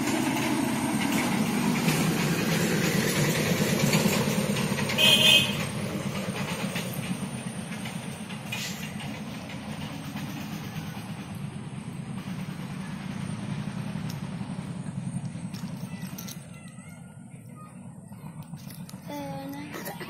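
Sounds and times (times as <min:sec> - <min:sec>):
vehicle horn blast: 0:05.0 - 0:05.7.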